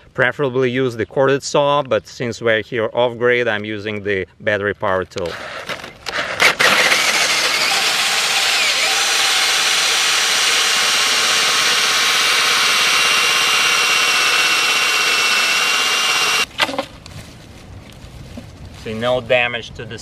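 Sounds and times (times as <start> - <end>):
cordless drill cutting with hole saw: 6.1 - 16.5.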